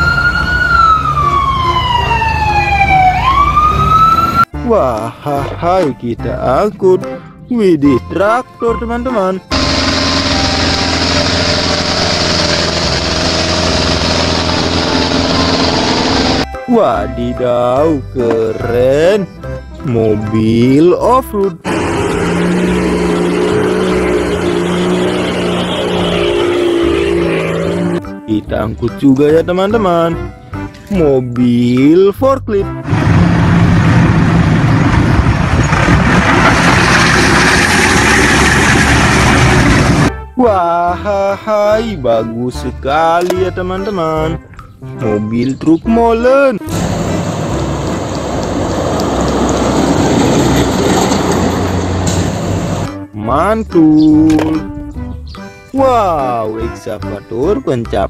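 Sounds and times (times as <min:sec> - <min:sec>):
tractor and harvester engines running: 0:09.5 - 0:16.5, 0:21.5 - 0:28.2, 0:32.8 - 0:40.1, 0:46.6 - 0:53.1
dense rush of noise: 0:32.9 - 0:40.1.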